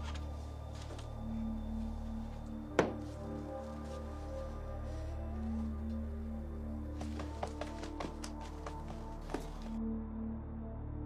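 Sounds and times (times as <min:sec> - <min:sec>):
quiet sustained background music: 0:00.0 - 0:11.0.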